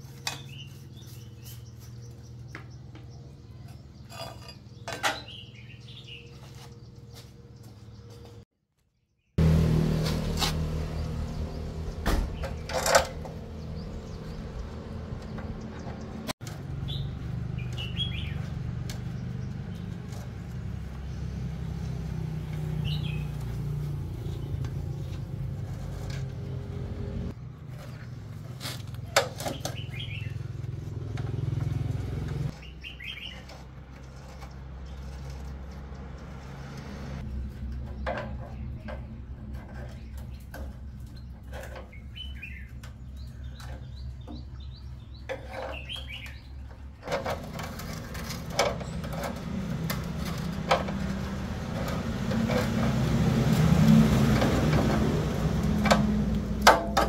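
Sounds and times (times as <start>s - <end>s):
bird chirps: 16.8s - 19.9s, 29.0s - 30.5s, 32.6s - 33.6s, 39.9s - 47.0s.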